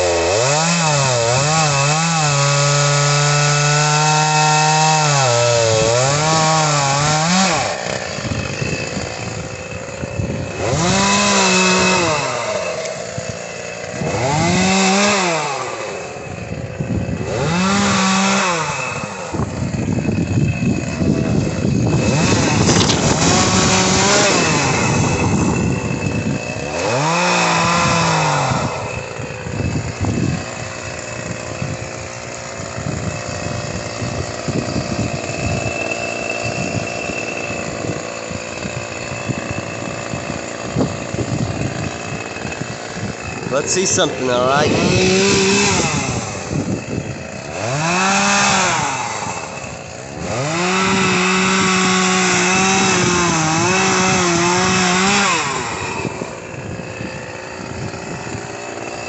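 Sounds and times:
chainsaw revving and idling: 0:00.0 - 0:59.0.

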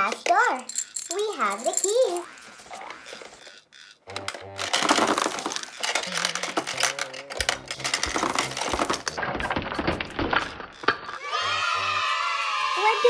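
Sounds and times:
plastic toy clicking and clattering: 0:00.0 - 0:11.2.

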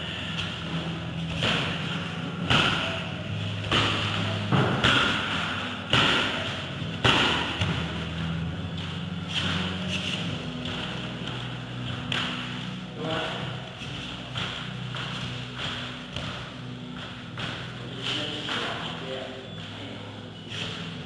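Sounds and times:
steady low hum: 0:00.0 - 0:21.0
dull thuds and slaps of strikes: 0:02.4 - 0:08.0.

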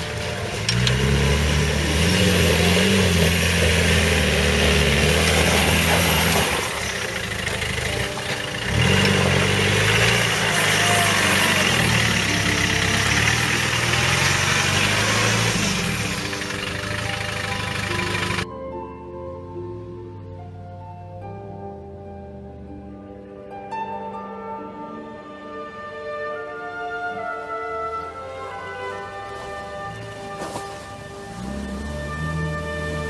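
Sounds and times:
engine revving: 0:00.0 - 0:18.4, 0:29.2 - 0:33.0
tyres churning mud: 0:00.0 - 0:18.4, 0:28.3 - 0:33.0.

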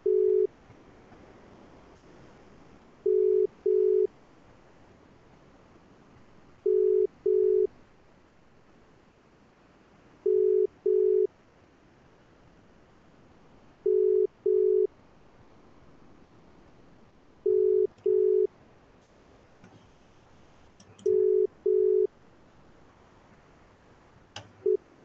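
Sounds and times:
telephone ringback tone beeps: 0:00.0 - 0:00.5, 0:03.0 - 0:04.1, 0:06.6 - 0:07.7, 0:10.2 - 0:11.3, 0:13.8 - 0:14.9, 0:17.4 - 0:18.5, 0:21.0 - 0:22.1, 0:24.6 - 0:24.8.

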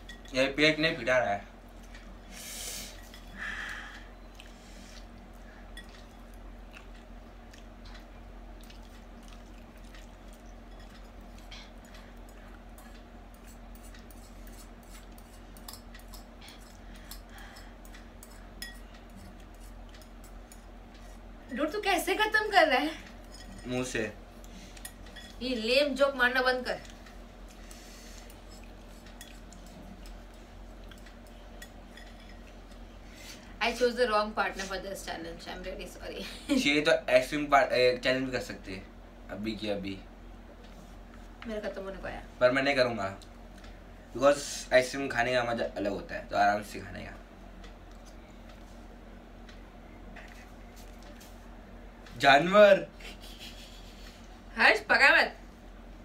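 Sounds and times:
chewing: 0:04.2 - 0:17.3, 0:28.2 - 0:32.8.

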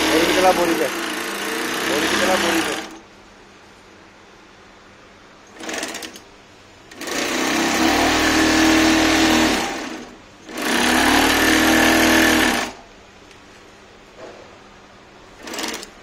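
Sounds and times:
sack stitching machine running: 0:00.0 - 0:03.0, 0:05.5 - 0:06.2, 0:06.9 - 0:12.8, 0:15.4 - 0:16.0.

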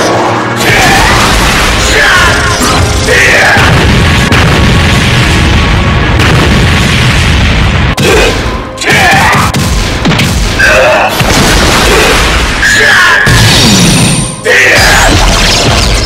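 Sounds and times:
explosion blast with rumble: 0:00.6 - 0:02.1, 0:02.7 - 0:08.6, 0:09.3 - 0:10.6, 0:11.2 - 0:12.6
booms: 0:00.6 - 0:14.2.

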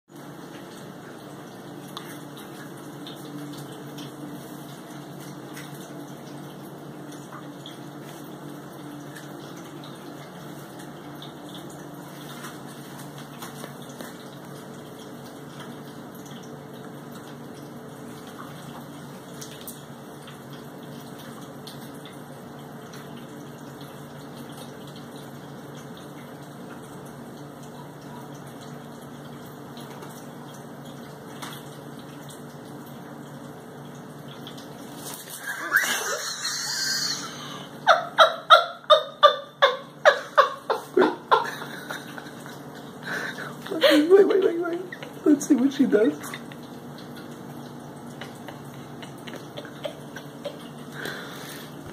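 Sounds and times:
small pump hum: 0:00.1 - 0:51.9
water trickling: 0:00.1 - 0:51.9.

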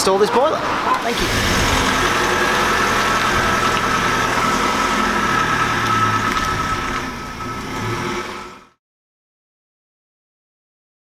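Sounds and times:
van engine driving off: 0:00.5 - 0:08.8.

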